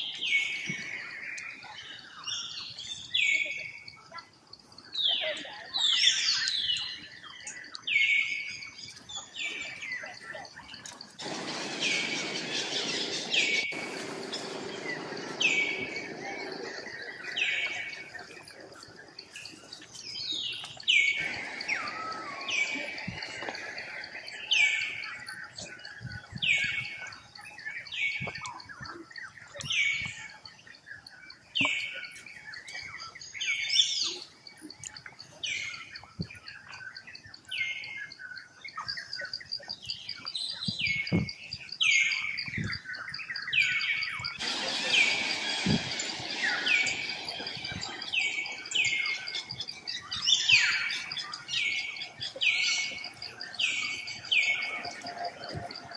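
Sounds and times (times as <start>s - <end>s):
steady high whine: 10.7s - 28.4s, 44.2s - 55.9s
animal calling: 11.2s - 25.8s, 44.4s - 55.9s.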